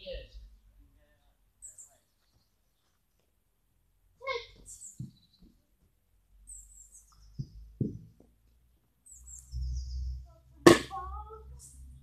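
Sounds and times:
songbird chirping: 0:00.0 - 0:12.0
soft knocks: 0:07.3 - 0:08.4.

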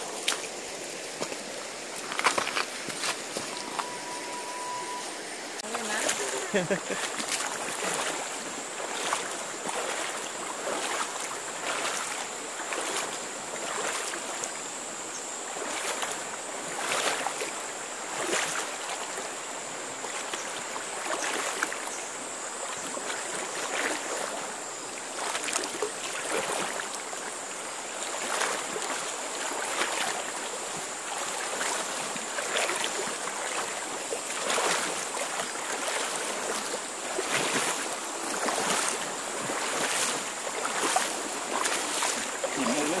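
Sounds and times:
splashing footsteps in water: 0:00.0 - 0:05.0, 0:05.6 - 0:14.7, 0:15.5 - 0:19.3, 0:19.9 - 0:22.0, 0:22.6 - 0:43.0
water washing: 0:00.0 - 0:14.7, 0:28.0 - 0:43.0
thin high tone: 0:03.4 - 0:06.6.

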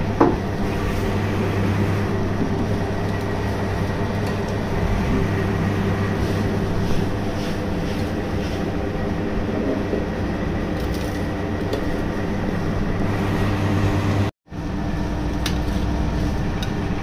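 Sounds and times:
dasher churning ice cream: 0:00.0 - 0:17.0
ice cream freezer motor hum: 0:00.0 - 0:17.0.

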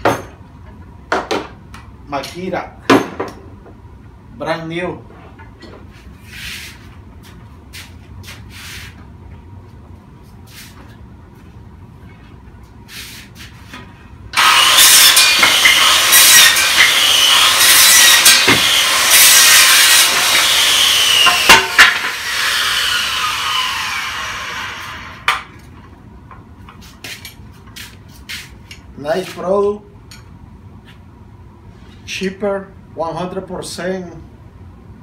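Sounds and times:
circular saw cutting wood: 0:14.4 - 0:25.3.

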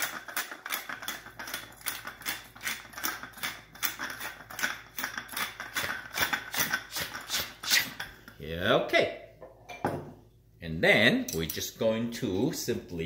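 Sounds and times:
pepper mill grinding: 0:00.0 - 0:08.2.

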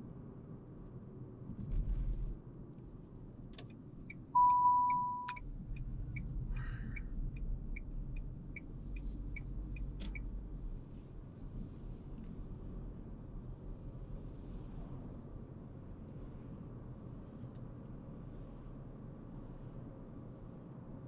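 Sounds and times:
engine and road noise: 0:00.0 - 0:21.0
turn signal ticking: 0:03.6 - 0:10.4
electronic beep: 0:04.4 - 0:05.4.

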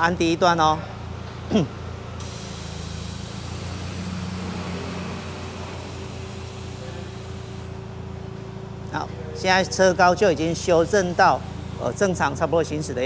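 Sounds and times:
air compressor humming: 0:01.5 - 0:13.0
air hissing from valves: 0:02.2 - 0:07.8, 0:10.3 - 0:12.2.

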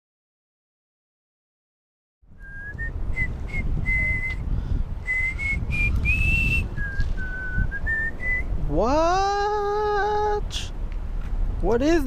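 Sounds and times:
low background rumble: 0:02.3 - 0:12.0
person whistling a melody: 0:02.4 - 0:08.5.

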